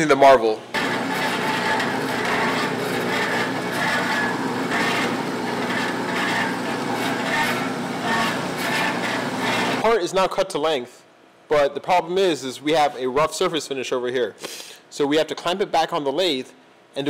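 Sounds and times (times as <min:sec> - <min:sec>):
band saw cutting metal: 0:00.8 - 0:09.8.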